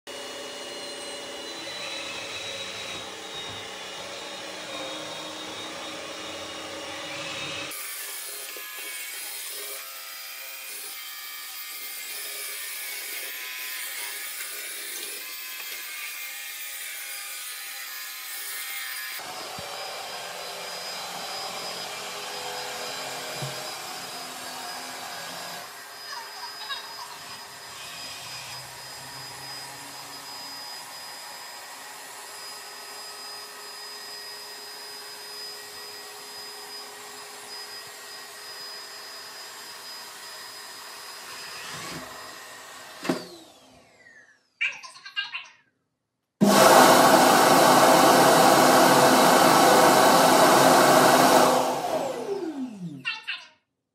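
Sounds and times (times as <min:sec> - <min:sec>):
robot vacuum motor whine: 0:00.1 - 0:10.4, 0:19.2 - 0:44.3, 0:46.4 - 0:53.0.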